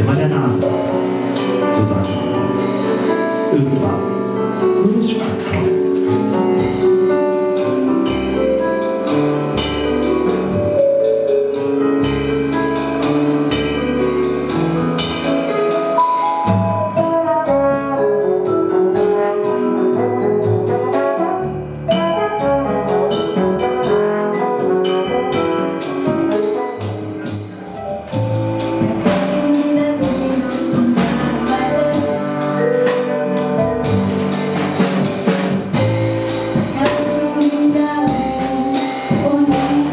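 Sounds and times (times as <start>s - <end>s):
double bass: 0.0s - 39.9s
drums: 0.0s - 39.9s
piano: 0.0s - 39.9s
trombone: 11.5s - 39.9s.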